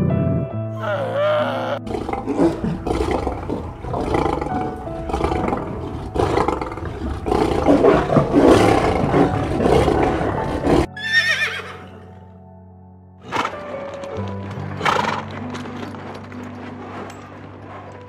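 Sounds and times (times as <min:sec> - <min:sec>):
background music: 0:00.0 - 0:18.0
horse whinnying: 0:00.8 - 0:12.2, 0:13.2 - 0:13.7.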